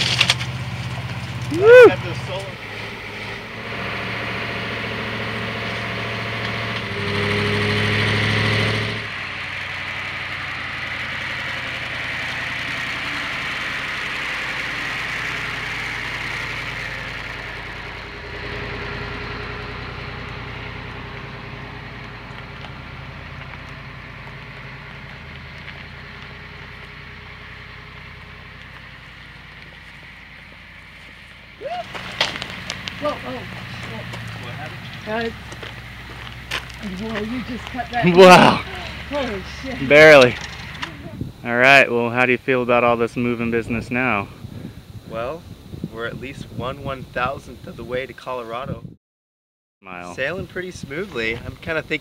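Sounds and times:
truck engine running: 0.0 - 48.6.

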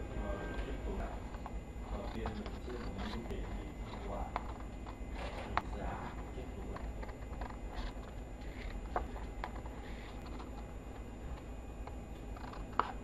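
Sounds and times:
low steady hum: 0.0 - 13.0
scissors snipping paper: 0.9 - 8.0.

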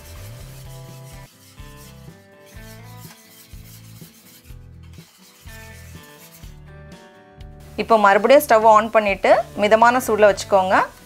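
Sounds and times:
whisk scraping a metal pan: 0.0 - 6.7
soft background music: 0.0 - 11.0.

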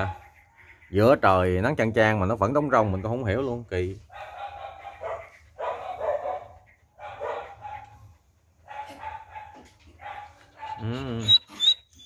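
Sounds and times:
dog barking: 0.0 - 0.3, 4.1 - 11.0.

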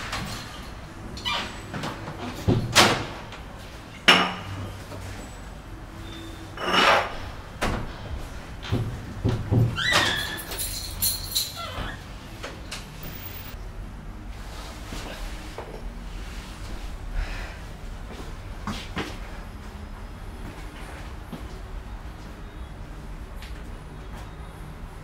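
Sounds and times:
squeaking door hinge: 1.2 - 1.7, 9.7 - 10.6, 11.4 - 12.1.

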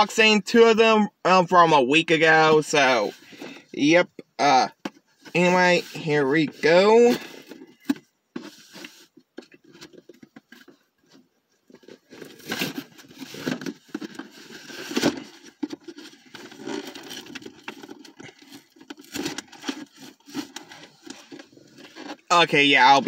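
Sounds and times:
packaging rustling and tearing: 11.8 - 22.3.

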